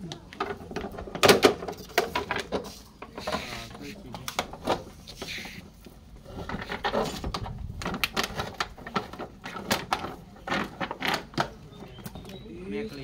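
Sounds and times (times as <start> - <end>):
plastic jar crackling and clicking: 6.8 - 12.4.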